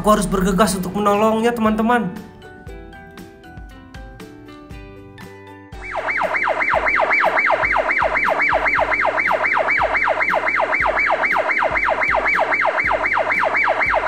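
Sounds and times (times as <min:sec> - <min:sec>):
fire truck siren wailing: 0:05.8 - 0:14.0.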